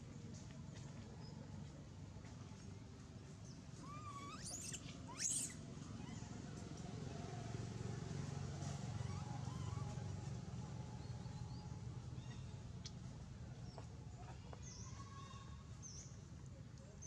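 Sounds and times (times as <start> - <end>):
monkey screaming: 3.8 - 6.3.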